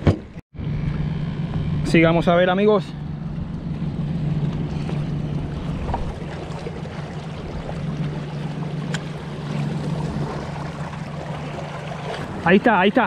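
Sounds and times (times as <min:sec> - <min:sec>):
steady low drone: 0:00.6 - 0:12.6
water lapping against rocks: 0:04.5 - 0:13.0.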